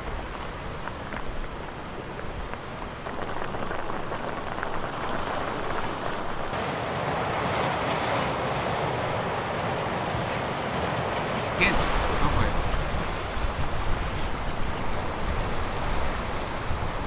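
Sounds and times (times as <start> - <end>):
wind on the microphone: 0.0 - 6.6, 11.5 - 17.0
sea surf on a rocky shore: 0.0 - 17.0.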